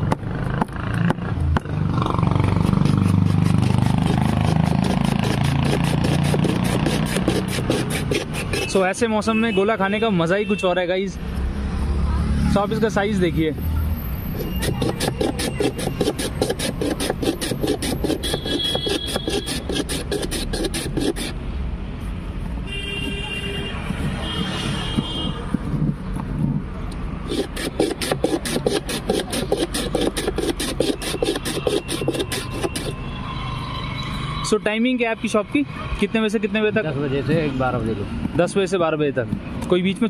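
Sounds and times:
ice scraping on shaver: 2.6s - 9.0s, 14.3s - 21.4s, 27.3s - 33.0s.

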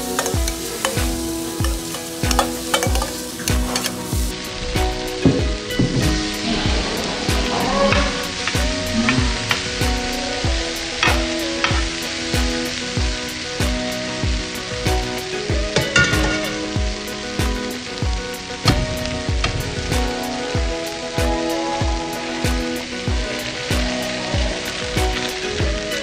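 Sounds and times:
spoon stirring and scraping: 0.0s - 4.2s
background music with beat: 0.0s - 26.0s
food sizzling on hot plate: 0.0s - 26.0s.

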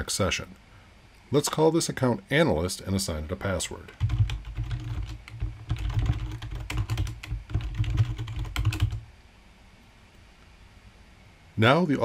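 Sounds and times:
keyboard typing: 3.9s - 9.0s.

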